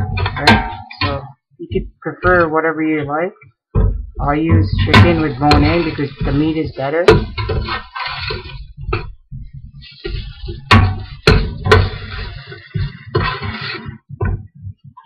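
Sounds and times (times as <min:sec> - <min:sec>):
sharp knocks: 0:03.7 - 0:12.1
food sizzling: 0:04.6 - 0:09.1, 0:09.8 - 0:14.0
spoon scraping against pot: 0:04.6 - 0:14.0.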